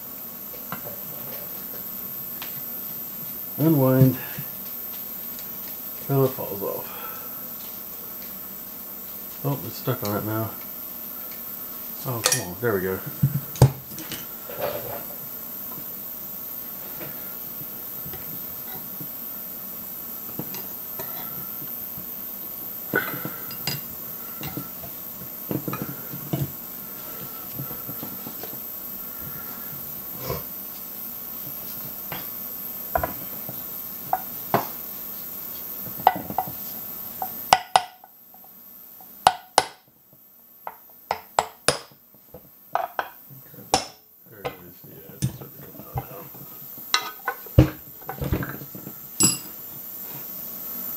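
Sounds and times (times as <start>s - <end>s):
steady hum: 0.0s - 50.9s.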